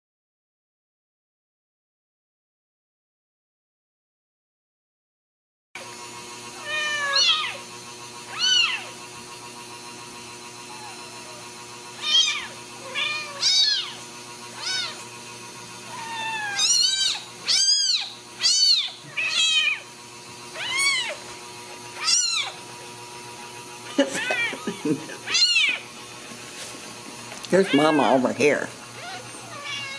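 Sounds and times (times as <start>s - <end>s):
kitten mewing: 6.6s - 7.6s, 8.3s - 8.9s, 10.7s - 15.1s, 15.8s - 19.9s, 20.6s - 21.2s, 22.0s - 22.6s, 23.8s - 25.9s, 27.5s - 28.3s, 29.0s - 29.9s.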